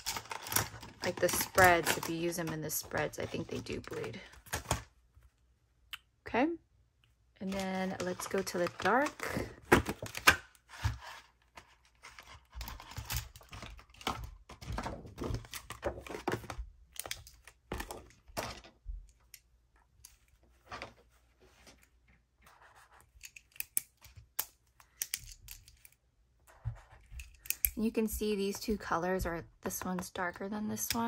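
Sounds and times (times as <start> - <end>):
plastic case crackling: 0.0 - 4.8.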